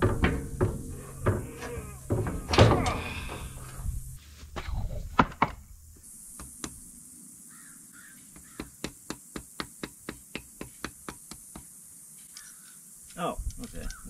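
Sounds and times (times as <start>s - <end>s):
crow cawing: 7.5s - 8.8s.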